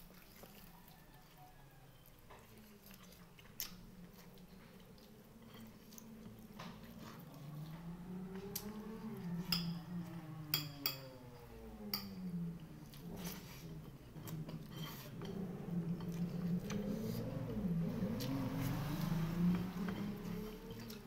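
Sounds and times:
chewing: 0:00.0 - 0:09.5, 0:12.0 - 0:21.0
low drone: 0:04.3 - 0:21.0.

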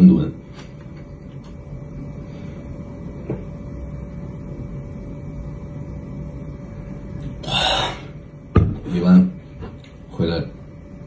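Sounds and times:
breathy exhale: 0:07.4 - 0:08.2.

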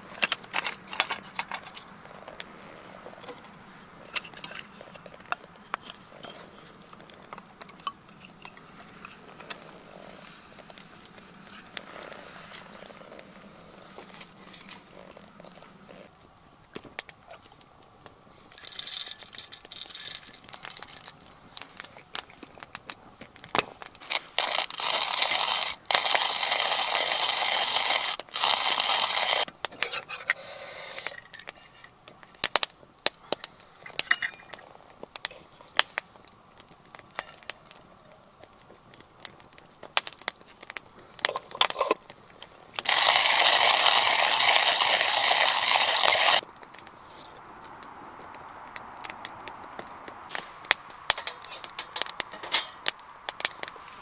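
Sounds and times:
wood fire crackling: 0:00.0 - 0:54.0
coffee mill grinding beans: 0:18.6 - 0:21.2, 0:24.0 - 0:31.2, 0:41.2 - 0:42.0, 0:42.8 - 0:46.4.

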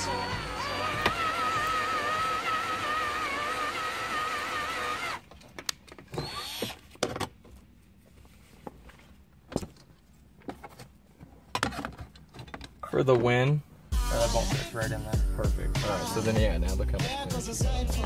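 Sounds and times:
cordless drill whining through plastic: 0:00.0 - 0:05.3, 0:06.1 - 0:06.8.

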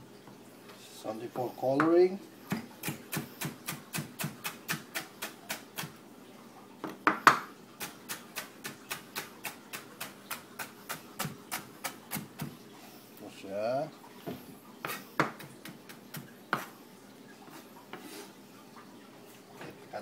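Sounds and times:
knife chopping on cutting board: 0:02.5 - 0:05.9, 0:14.3 - 0:16.7.

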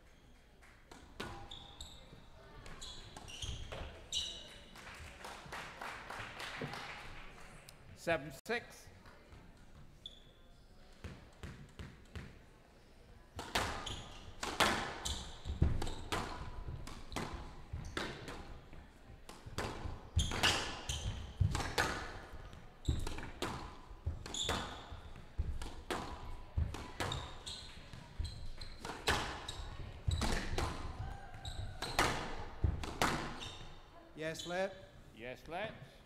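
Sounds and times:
squash ball hitting racquets and walls: 0:00.8 - 0:04.5, 0:11.0 - 0:12.4, 0:13.4 - 0:33.9.

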